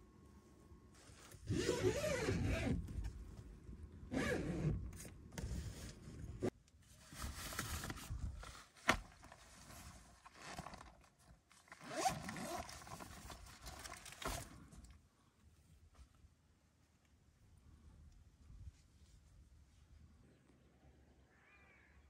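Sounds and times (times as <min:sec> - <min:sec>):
zipper being pulled: 0:01.4 - 0:02.8, 0:11.7 - 0:14.0
nylon fabric rustling: 0:11.8 - 0:14.7.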